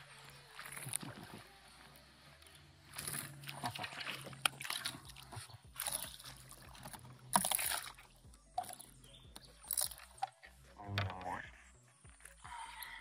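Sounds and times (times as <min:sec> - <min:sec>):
fish thrashing and splashing: 0:00.0 - 0:01.9, 0:02.7 - 0:10.7.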